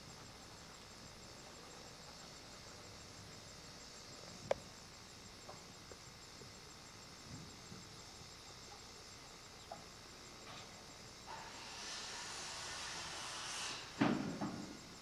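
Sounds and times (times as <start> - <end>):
steady hiss: 0.0 - 15.0
faint ticks: 4.1 - 10.8.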